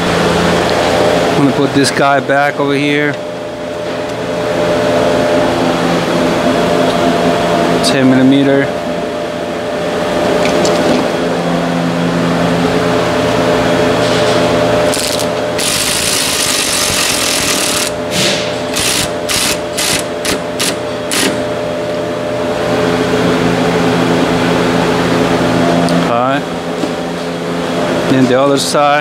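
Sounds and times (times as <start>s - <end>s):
steady mechanical hum: 0.0s - 29.0s
power tool driving bolt: 14.9s - 17.9s, 18.7s - 21.4s.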